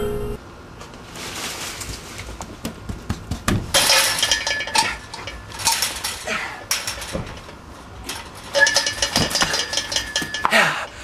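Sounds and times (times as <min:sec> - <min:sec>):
chain-link fence gate rattling: 0:03.7 - 0:10.7.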